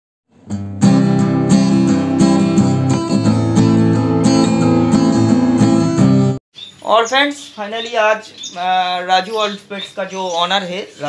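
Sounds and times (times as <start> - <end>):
strummed guitar music: 0.3 - 6.4.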